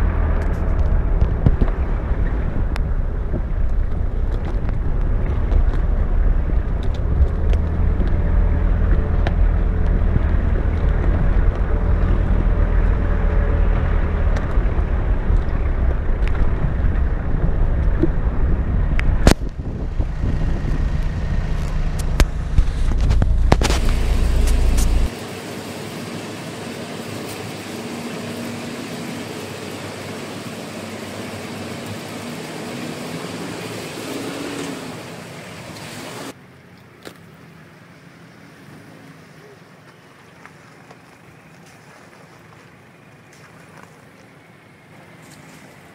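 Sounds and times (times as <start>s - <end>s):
wind on microphone: 0.0s - 25.1s
off-road vehicle engine rumble: 0.0s - 45.9s.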